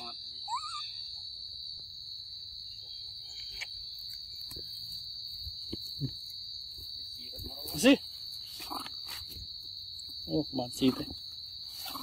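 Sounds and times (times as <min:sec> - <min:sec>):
monkey calls: 0:00.0 - 0:01.2
insects droning: 0:00.0 - 0:12.0.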